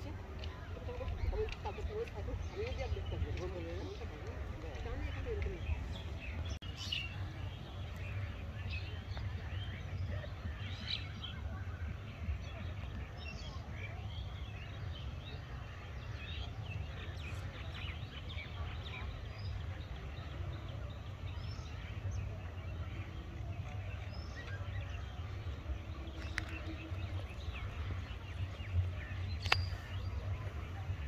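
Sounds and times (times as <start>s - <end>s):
small birds chirping: 0.0s - 31.0s
steady low rumble: 7.2s - 31.0s.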